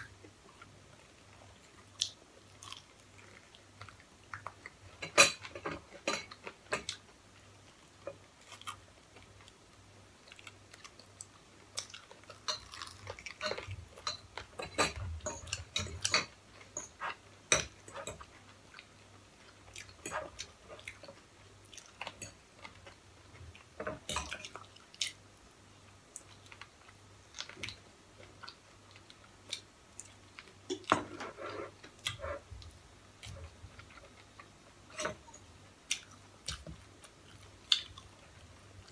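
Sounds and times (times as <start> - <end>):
people chewing: 0.6 - 4.6, 10.2 - 25.2
cutlery scraping plates: 30.9 - 32.4.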